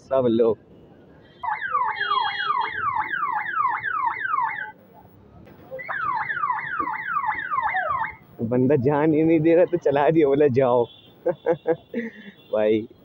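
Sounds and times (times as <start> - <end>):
electronic siren wailing: 1.4 - 4.8, 5.8 - 8.2.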